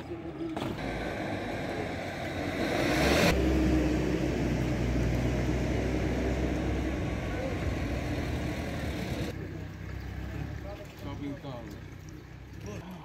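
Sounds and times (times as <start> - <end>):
low engine rumble: 0.1 - 12.8
vehicle rushing past: 0.8 - 9.3.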